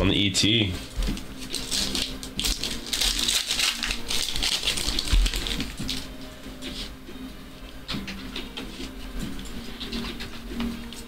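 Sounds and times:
cards and foil wrapper crinkling: 0.8 - 6.9.

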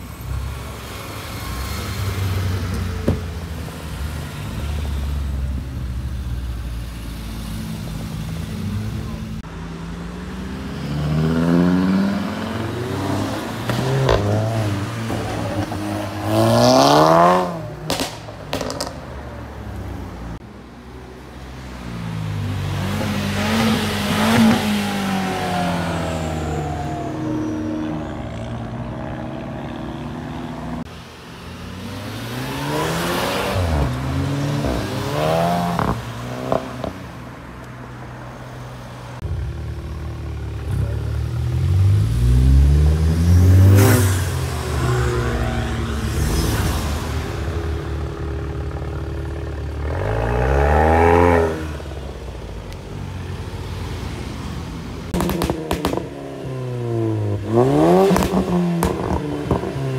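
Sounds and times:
cars accelerating past: 9.9 - 19.0, 31.5 - 37.2, 40.6 - 52.3.

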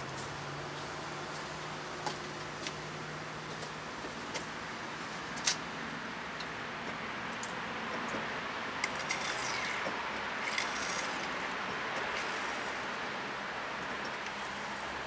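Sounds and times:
traffic hum: 0.0 - 15.0
brake fluid hissing and sputtering: 6.4 - 15.0.

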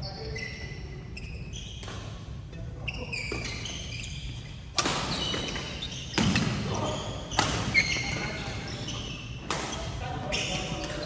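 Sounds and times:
shoes squeaking on wooden floor: 2.8 - 11.0
racket hitting shuttlecock: 4.7 - 6.6, 7.3 - 8.2.

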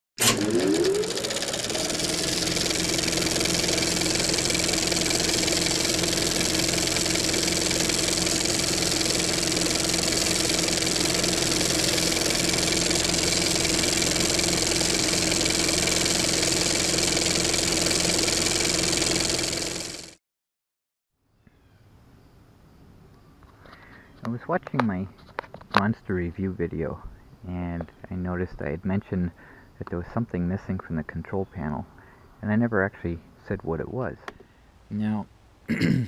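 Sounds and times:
motor humming: 0.2 - 20.2.

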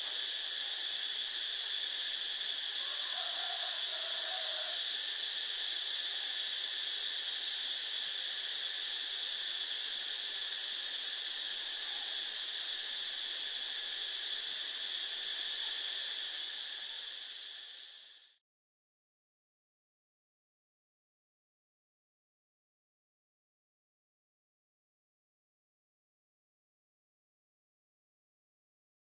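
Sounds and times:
insect chorus chirring: 0.0 - 18.4.

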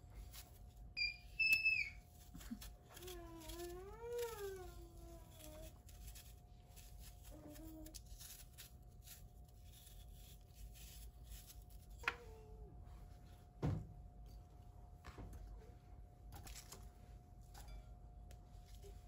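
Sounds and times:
knife scraping apple: 0.2 - 12.1.

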